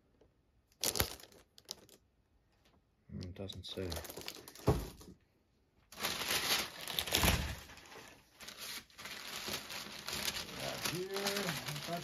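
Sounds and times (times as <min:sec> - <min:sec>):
packing material rustling: 0:00.8 - 0:02.0, 0:03.7 - 0:05.1, 0:05.9 - 0:12.0.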